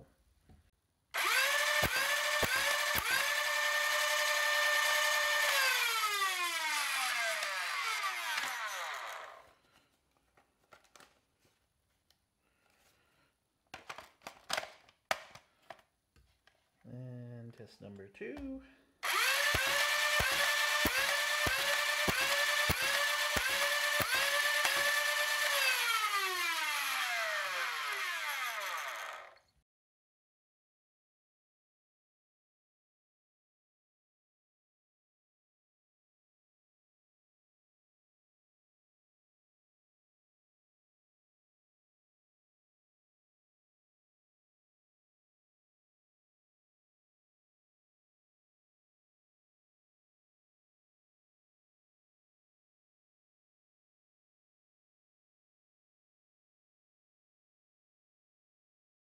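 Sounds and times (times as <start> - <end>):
toy blaster motors whining: 1.2 - 9.6, 19.0 - 29.5.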